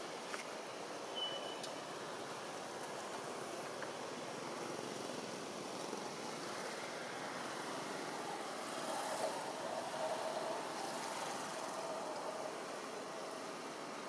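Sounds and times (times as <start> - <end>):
outdoor background hiss: 0.0 - 14.0.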